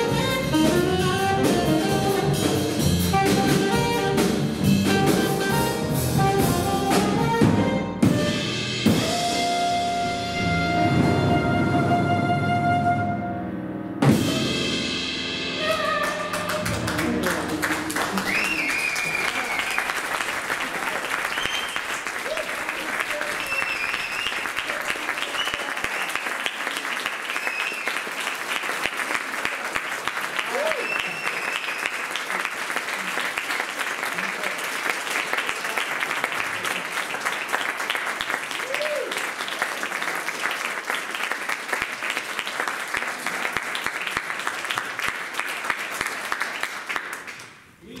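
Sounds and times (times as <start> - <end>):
audience applauding: 15.6 - 48.0
crowd whistling: 18.0 - 20.1, 21.2 - 22.5, 23.3 - 26.4, 27.1 - 28.2, 30.5 - 32.1.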